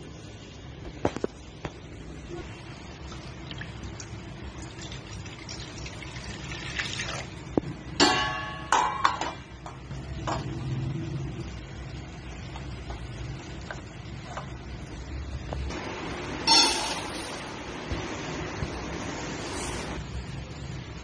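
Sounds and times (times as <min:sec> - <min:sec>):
water pouring into metal pan: 0:03.0 - 0:07.5
metal steamer knocking against pot: 0:08.0 - 0:09.4.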